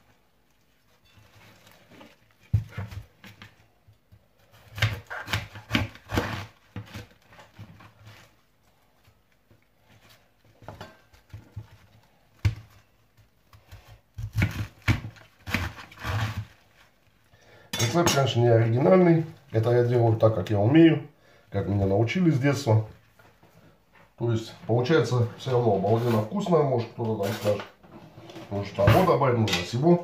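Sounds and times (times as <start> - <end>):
knife crunching through cabbage: 4.4 - 8.3, 13.6 - 17.0.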